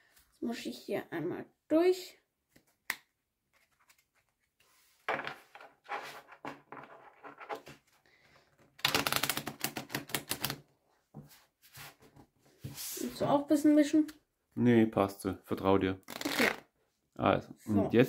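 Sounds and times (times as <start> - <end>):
cards sliding and rubbing: 3.5 - 5.1, 5.8 - 7.8
deck of cards riffled: 8.8 - 10.6, 16.0 - 16.6.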